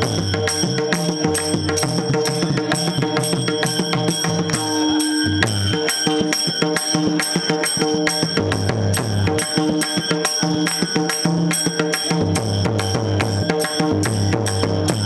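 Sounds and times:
drums and percussion beat: 0.0 - 15.0
stepping bass line: 14.0 - 15.0.

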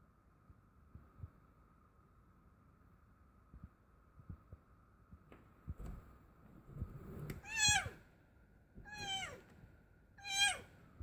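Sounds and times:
cat meowing: 7.4 - 8.0, 8.8 - 9.4, 10.2 - 10.8.

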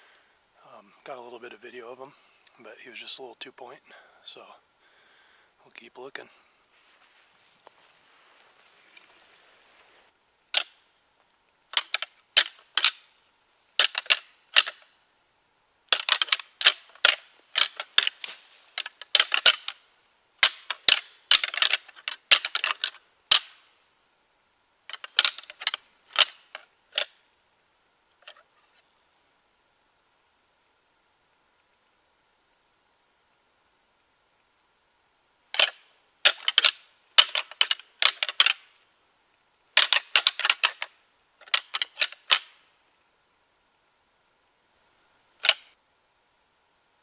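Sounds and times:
antlers clashing together: 11.7 - 13.0, 13.8 - 14.8, 15.9 - 19.8, 20.4 - 23.6, 24.9 - 27.1, 35.6 - 38.6, 39.8 - 42.5.

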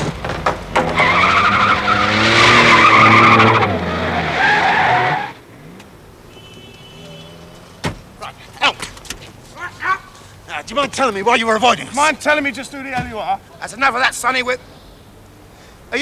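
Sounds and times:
car tyres squealing: 0.0 - 5.4.

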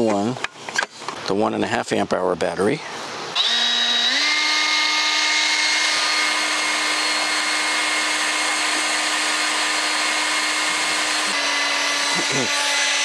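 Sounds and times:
leaf blower running: 3.4 - 13.0.

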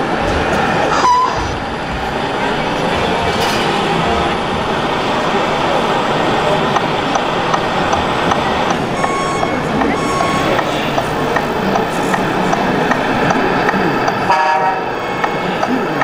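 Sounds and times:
crowd noise of voices: 0.0 - 16.0
horn-like tone: 0.9 - 1.5, 9.0 - 10.8, 14.3 - 15.5
short beeping tones: 1.0 - 1.5, 9.0 - 10.9.

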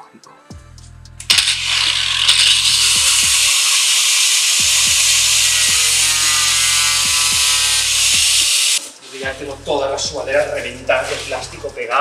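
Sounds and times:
angle grinder cutting plastic: 1.2 - 8.8.

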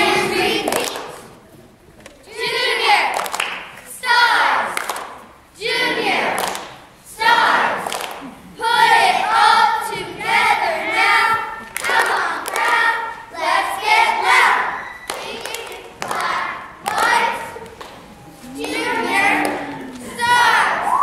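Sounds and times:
cheerleaders chanting in unison: 0.0 - 1.2, 2.2 - 21.0
sharp claps: 0.6 - 1.3, 3.1 - 3.8, 4.8 - 5.3, 6.3 - 6.9, 7.8 - 8.3, 11.7 - 12.9, 15.1 - 18.0.

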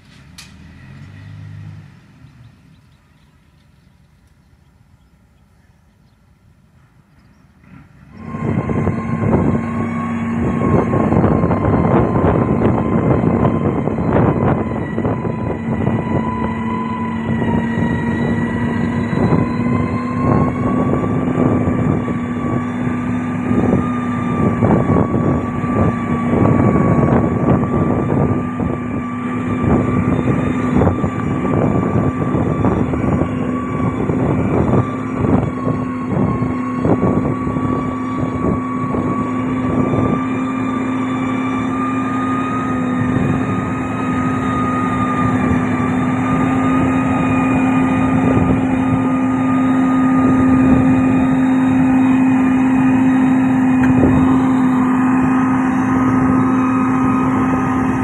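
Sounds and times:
diesel machinery droning: 0.0 - 58.0.

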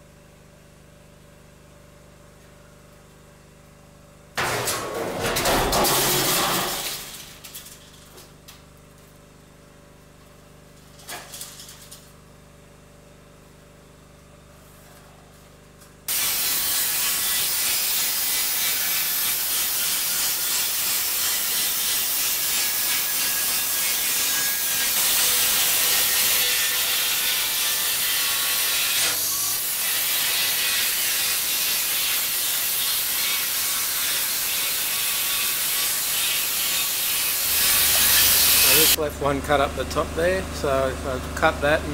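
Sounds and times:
steel sheet clattering: 4.4 - 8.2, 10.9 - 12.0
angle grinder cutting steel: 5.4 - 7.3, 16.1 - 39.0
generator engine humming: 38.7 - 41.9.

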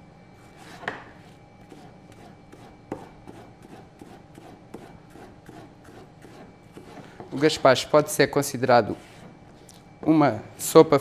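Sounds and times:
knife chopping on plastic cutting board: 0.6 - 7.3.

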